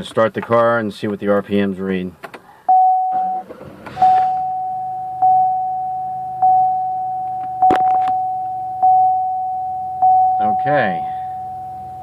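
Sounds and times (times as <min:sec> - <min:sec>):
car engine idling: 0:02.4 - 0:12.0
dashboard warning chime dinging: 0:02.7 - 0:12.0.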